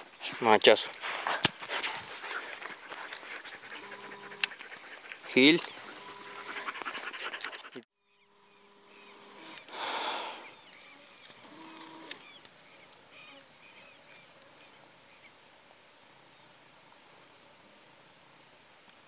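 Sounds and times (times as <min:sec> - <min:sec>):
dog panting: 0:01.2 - 0:07.9
birds chirping in the distance: 0:01.9 - 0:15.4.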